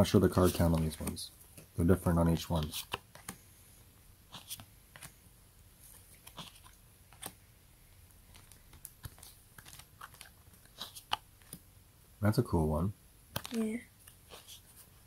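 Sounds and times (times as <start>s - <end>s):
cards being flipped: 4.3s - 5.2s, 5.9s - 7.4s, 8.2s - 11.6s, 13.3s - 14.9s.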